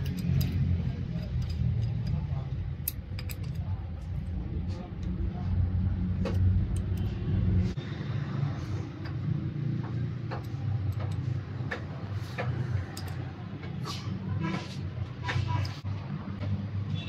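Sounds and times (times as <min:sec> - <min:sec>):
small metal parts clicking: 0:00.0 - 0:04.4, 0:10.2 - 0:11.4, 0:12.4 - 0:13.3.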